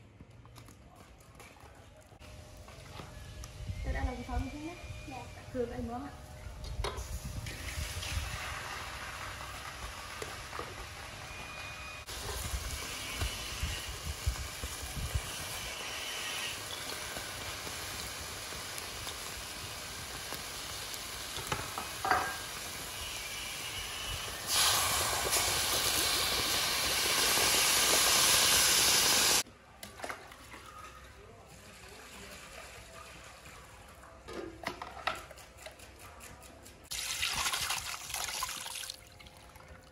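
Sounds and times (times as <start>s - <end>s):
shrimp sizzling in a wok: 7.0s - 11.4s, 12.0s - 29.4s.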